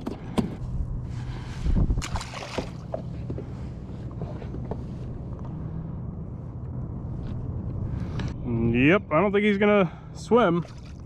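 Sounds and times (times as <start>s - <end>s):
wind: 0.0s - 11.0s
water noise: 1.7s - 3.1s, 10.4s - 11.0s.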